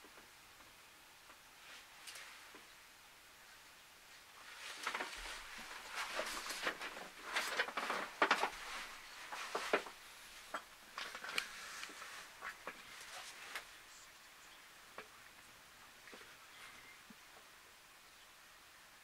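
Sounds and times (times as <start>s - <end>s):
rustling and crackling: 0.0s - 2.8s, 3.4s - 14.3s.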